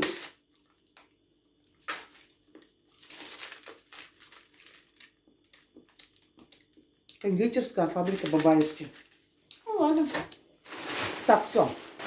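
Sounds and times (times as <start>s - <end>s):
wrapper crinkling: 1.7s - 6.8s, 7.8s - 12.0s.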